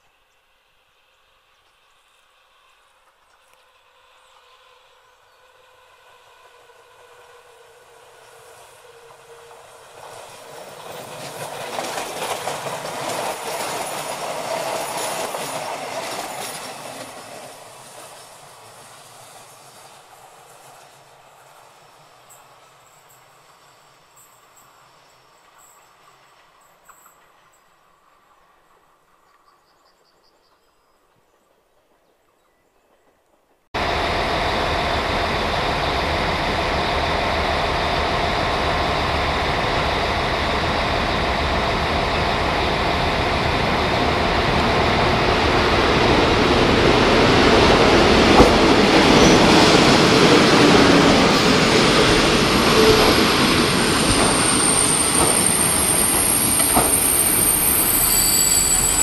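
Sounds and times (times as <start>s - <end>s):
diesel railcar rumbling: 33.8s - 59.0s
high wheel squeal: 33.8s - 59.0s.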